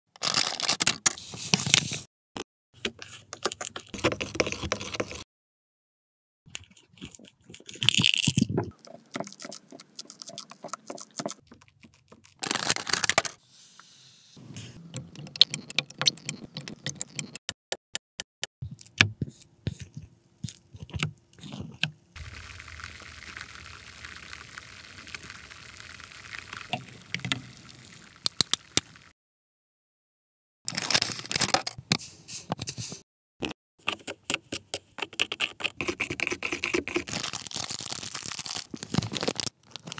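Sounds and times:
scissors cutting plastic sachet: 0.2s - 1.1s, 12.2s - 13.4s, 30.7s - 31.8s, 35.0s - 39.9s
liquid pouring into plastic pot: 22.2s - 29.0s.

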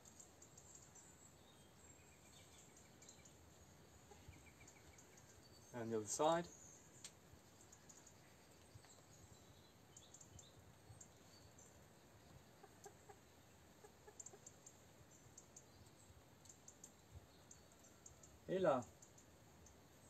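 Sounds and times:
faint high clicks: 7.0s - 7.2s
chickens clucking: 12.3s - 14.9s.

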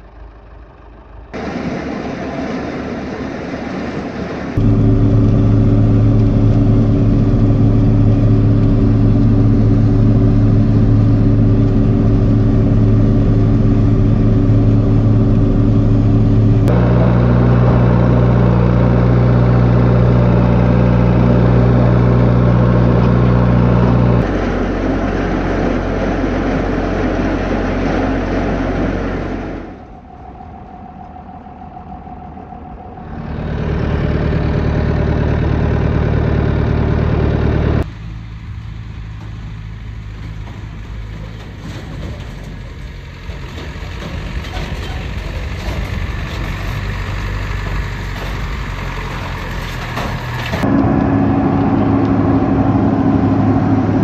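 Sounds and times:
tractor diesel engines running: 0.0s - 54.0s.

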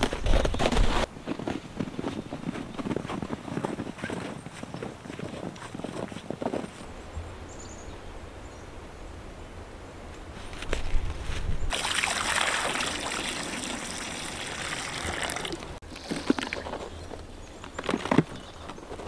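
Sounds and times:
water pouring into a rubber pan: 11.7s - 15.7s.

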